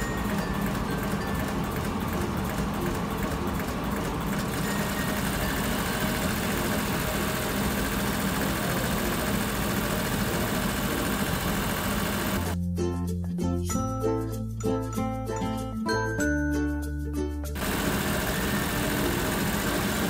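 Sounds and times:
electric motor humming and whirring: 0.0s - 12.6s, 17.6s - 20.0s.

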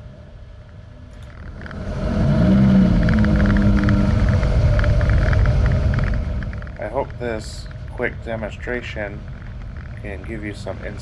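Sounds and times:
car engine accelerating: 1.2s - 7.8s.

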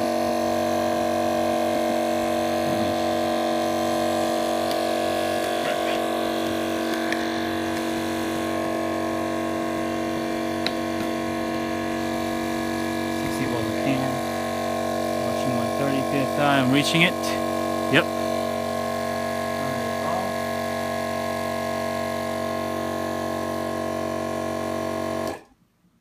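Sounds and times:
electric air pump humming: 0.0s - 25.5s.

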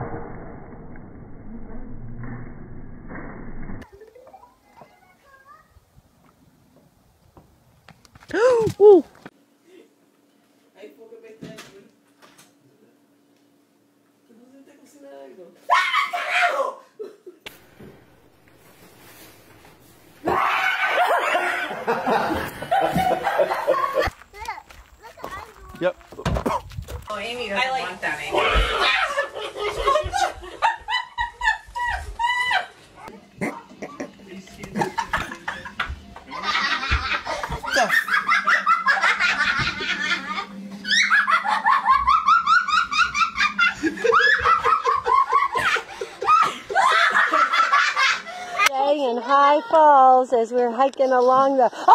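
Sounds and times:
people laughing loudly: 20.3s - 24.1s, 28.5s - 32.8s, 33.8s - 48.7s.

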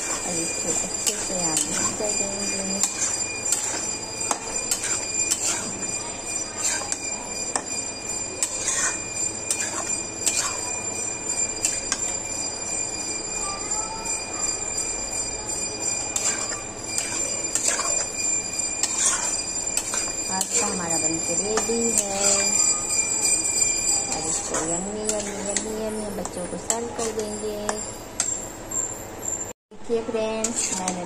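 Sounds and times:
metal spoon scraping a pan: 0.0s - 12.2s, 16.0s - 27.8s, 30.3s - 31.0s.

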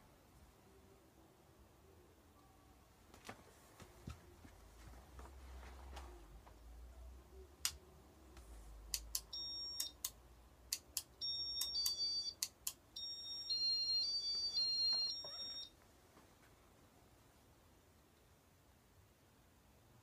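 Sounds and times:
high beeps: 9.3s - 10.0s, 11.2s - 12.4s, 13.0s - 15.7s.

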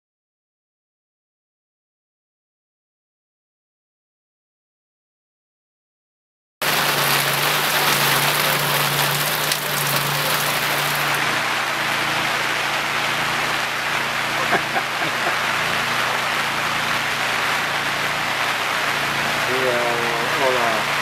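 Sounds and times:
rain on tent canopy: 6.6s - 21.0s.

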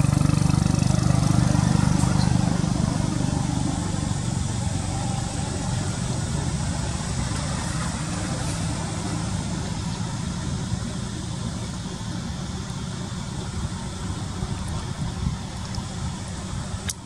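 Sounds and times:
faint hiss: 0.0s - 17.0s
low rumbling noise: 0.0s - 17.0s.

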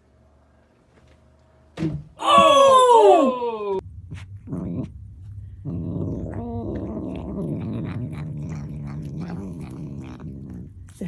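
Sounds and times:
cat growling: 4.4s - 5.0s, 5.6s - 11.0s.

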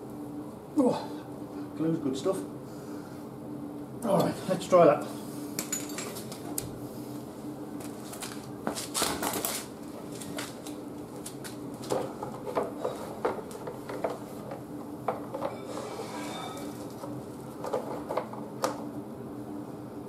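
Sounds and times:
faint steady hum: 0.0s - 20.0s.

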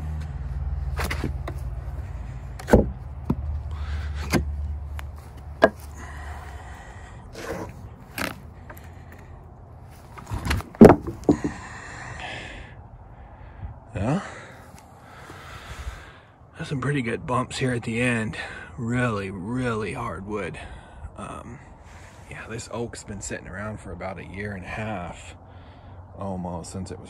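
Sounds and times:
low steady rumble: 0.0s - 26.0s
wooden slabs knocking: 2.6s - 3.5s, 5.6s - 5.9s, 10.2s - 11.6s
rustling: 7.3s - 11.6s.

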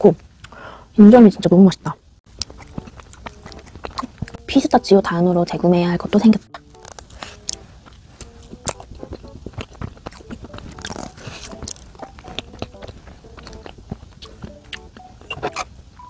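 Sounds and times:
close chewing and mouth clicks: 2.3s - 4.5s, 6.5s - 15.7s.

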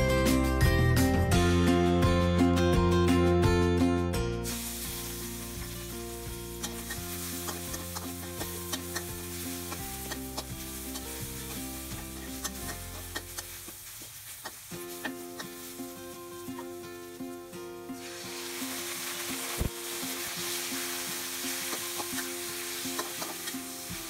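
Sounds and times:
background music: 0.0s - 13.7s, 14.8s - 24.0s
chili and garlic sizzling in oil: 4.4s - 24.0s.

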